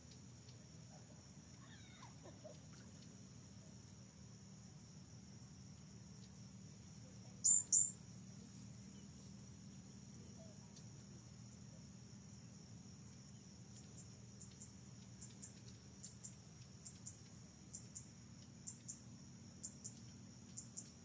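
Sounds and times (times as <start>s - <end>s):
high-pitched insect chorus: 0.0s - 21.0s
short chirps in pairs: 7.4s - 8.0s.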